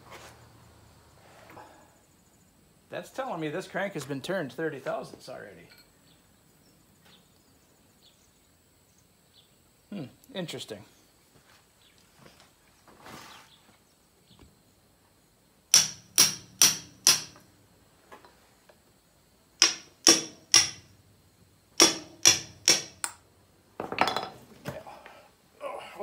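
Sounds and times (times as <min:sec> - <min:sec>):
hammer knocking on metal: 0:15.8 - 0:17.4, 0:19.6 - 0:20.9, 0:21.8 - 0:23.1.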